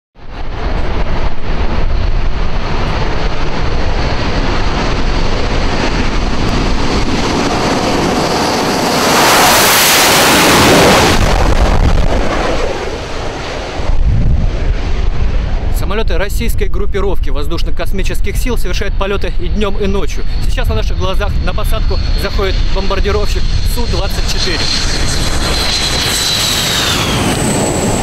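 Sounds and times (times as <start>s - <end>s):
jet engines running: 0.2s - 28.0s.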